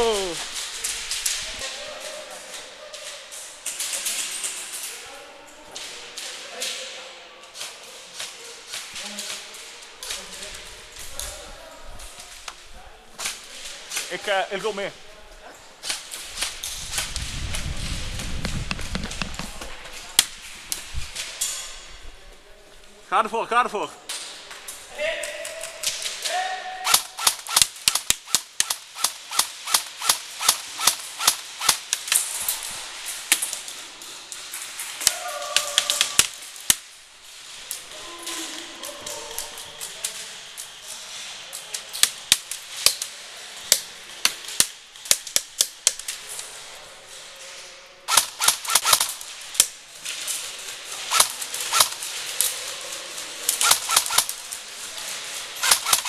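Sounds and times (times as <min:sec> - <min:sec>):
loud crack: 0:25.4 - 0:33.8, 0:48.1 - 0:52.7, 0:53.4 - 0:56.0
airsoft gun shots: 0:26.8 - 0:31.9, 0:48.1 - 0:49.2, 0:51.1 - 0:52.0, 0:53.6 - 0:54.4, 0:55.6 - 0:56.0
sharp irregular clicks: 0:26.9 - 0:32.2, 0:48.1 - 0:49.7, 0:51.1 - 0:52.5, 0:53.5 - 0:54.4, 0:55.6 - 0:56.0.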